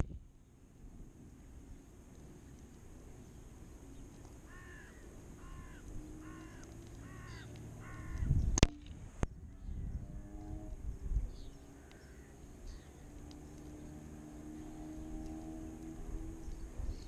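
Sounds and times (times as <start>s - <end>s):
crow cawing: 4.4s - 8.3s, 11.8s - 12.9s.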